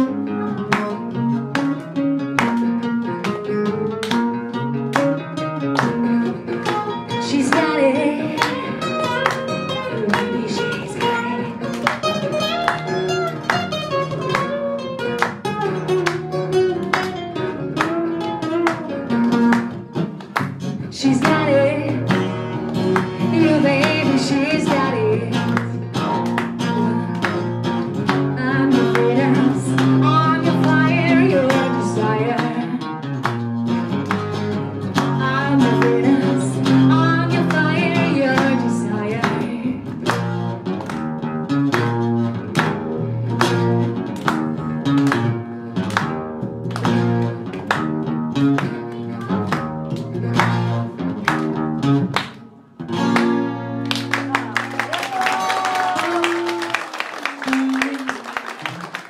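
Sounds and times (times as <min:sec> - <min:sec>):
acoustic guitar strummed: 0:00.0 - 0:54.0
woman singing: 0:07.0 - 0:12.0, 0:20.8 - 0:22.6, 0:23.2 - 0:25.8, 0:26.6 - 0:27.4, 0:28.1 - 0:33.0, 0:35.0 - 0:40.0.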